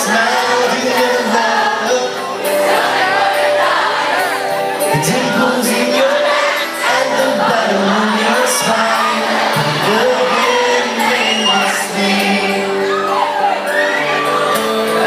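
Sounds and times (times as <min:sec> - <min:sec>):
man singing into a microphone: 0:00.0 - 0:02.9, 0:04.8 - 0:13.4
crowd noise: 0:00.0 - 0:15.0
live pop-rock band: 0:00.0 - 0:15.0.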